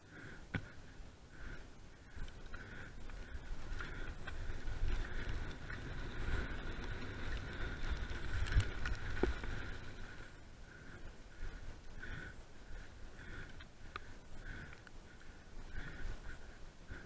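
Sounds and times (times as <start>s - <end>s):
bike tyres rumbling on dirt: 0.1s - 13.5s
wind on camera: 3.5s - 10.2s.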